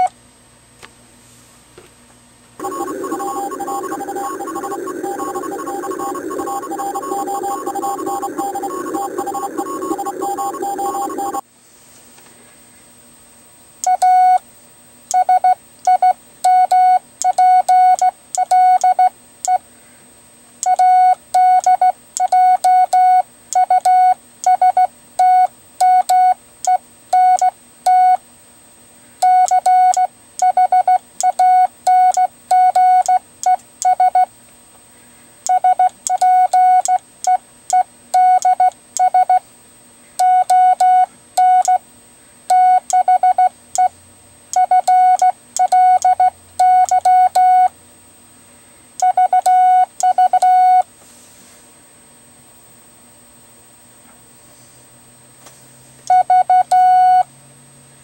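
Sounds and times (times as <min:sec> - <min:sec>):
morse code beeps: 0:02.6 - 0:11.4, 0:29.2 - 0:33.2, 0:35.5 - 0:39.4, 0:44.6 - 0:47.7, 0:49.0 - 0:50.8, 0:56.1 - 0:57.2.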